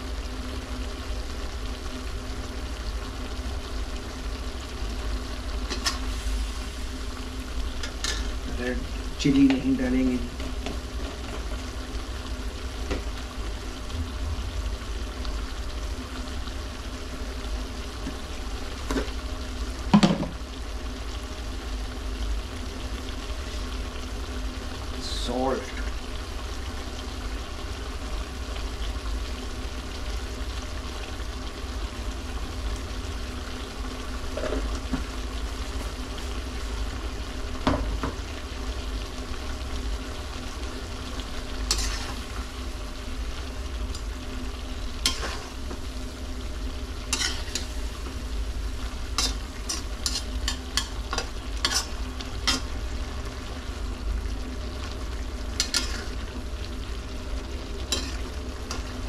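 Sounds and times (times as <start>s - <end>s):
liver frying in a pan: 0.0s - 59.0s
steady low hum: 0.0s - 59.0s
utensil scraping a pan: 41.7s - 42.3s, 45.1s - 45.6s, 47.1s - 47.9s, 49.2s - 52.7s, 55.6s - 56.2s, 57.9s - 58.8s.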